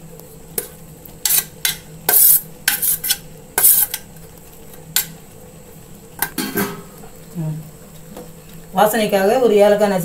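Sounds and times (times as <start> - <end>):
spoon scraping steel plate: 1.2 - 4.0.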